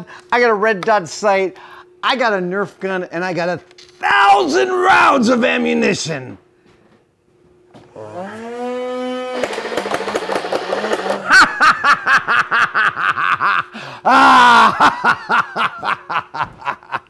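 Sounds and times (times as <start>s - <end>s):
man whooping and laughing: 11.2s - 17.0s.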